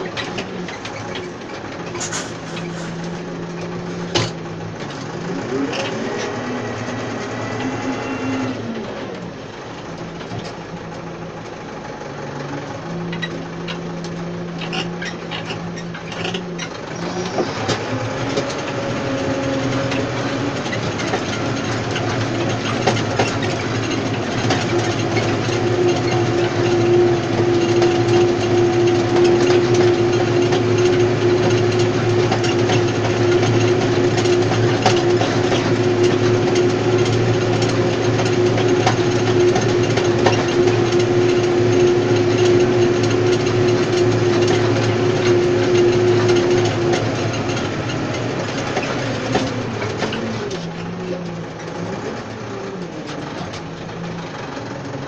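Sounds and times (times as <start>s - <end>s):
cultivator clicking and rattling: 0.0s - 55.0s
steady whine: 0.0s - 55.0s
tractor engine running under load: 0.0s - 55.0s.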